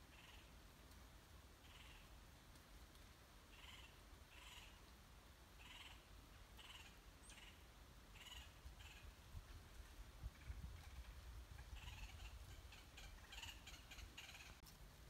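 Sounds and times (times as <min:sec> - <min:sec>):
harsh bird calls: 0:11.6 - 0:14.6.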